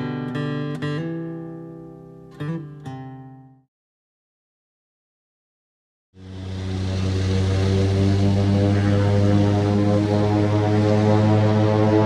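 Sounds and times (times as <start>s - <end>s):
propeller plane engine drone: 6.2s - 12.0s.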